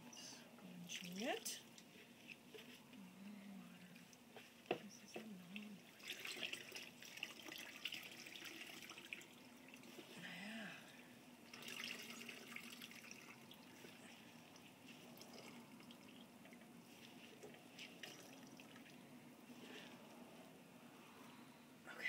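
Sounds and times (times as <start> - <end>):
steady low hum: 0.0 - 6.1
liquid trickling and dripping: 5.1 - 10.1, 11.4 - 19.1.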